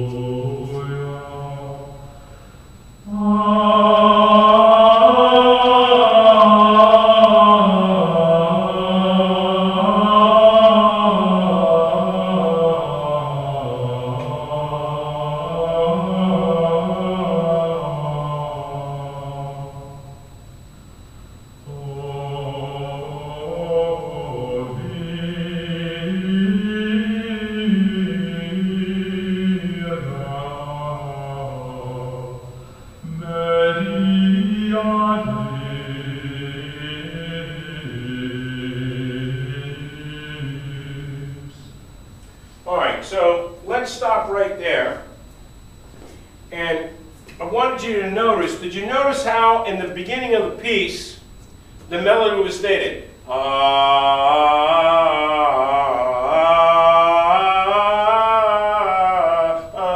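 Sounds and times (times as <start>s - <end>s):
voices singing chant in unison: 0.0s - 2.2s, 3.0s - 20.2s, 21.6s - 41.8s, 51.9s - 59.9s
solo chant over loudspeaker: 0.0s - 45.8s, 46.4s - 59.9s.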